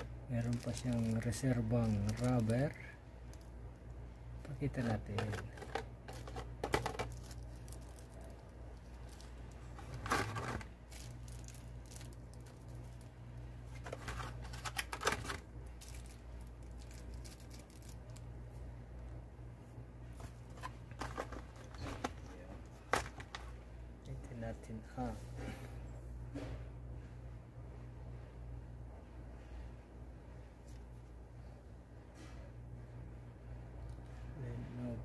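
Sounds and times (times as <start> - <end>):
cardboard and plastic rustling: 0.0 - 3.5, 4.4 - 18.2, 20.0 - 23.6
steady low hum: 0.0 - 35.0.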